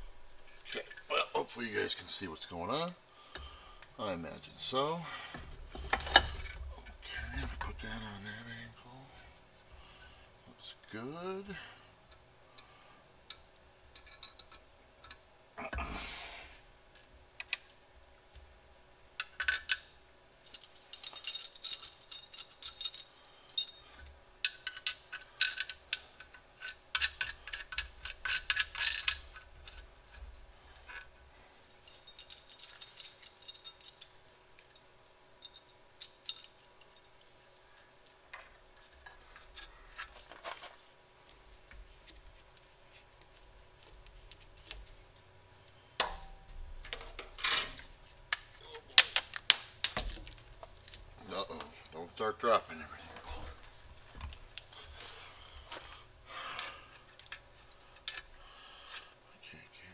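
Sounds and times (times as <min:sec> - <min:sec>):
small metallic clinks and taps: 0:12.1 - 0:15.2, 0:19.2 - 0:31.2, 0:31.8 - 0:40.6, 0:48.3 - 0:51.0.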